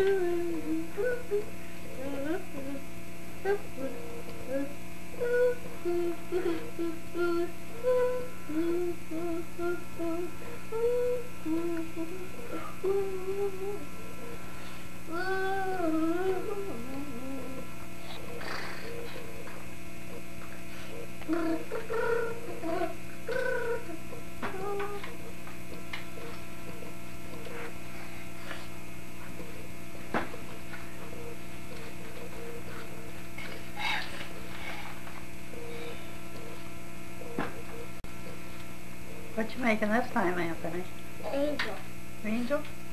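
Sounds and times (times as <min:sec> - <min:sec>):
child humming a tune: 0:00.0 - 0:19.3, 0:20.8 - 0:25.3, 0:41.2 - 0:41.8.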